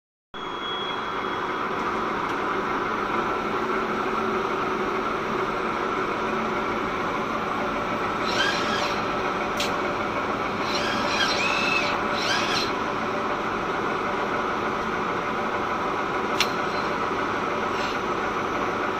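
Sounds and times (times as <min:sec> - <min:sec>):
high-pitched squeal: 0:00.4 - 0:01.8, 0:08.2 - 0:09.2, 0:10.6 - 0:12.8
machine running: 0:00.4 - 0:18.9
sharp click: 0:16.4 - 0:16.6.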